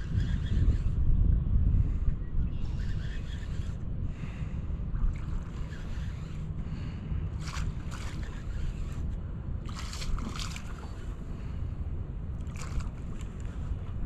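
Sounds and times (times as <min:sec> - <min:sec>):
wind noise on microphone: 0:00.0 - 0:14.0
water splashing against hull: 0:04.9 - 0:11.6, 0:12.3 - 0:14.0.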